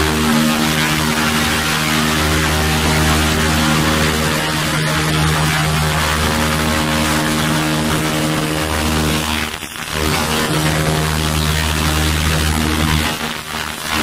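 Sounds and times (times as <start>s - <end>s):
laser cleaning machine humming: 0.0s - 14.0s.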